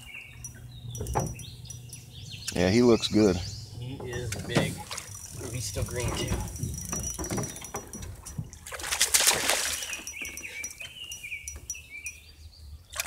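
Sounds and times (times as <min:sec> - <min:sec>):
fish thrashing in water: 0:04.7 - 0:10.9
loud water splash: 0:08.7 - 0:09.9.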